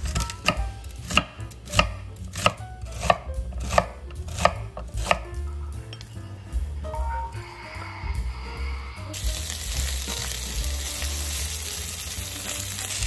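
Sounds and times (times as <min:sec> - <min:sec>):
knife chopping celery on board: 0:00.0 - 0:05.3.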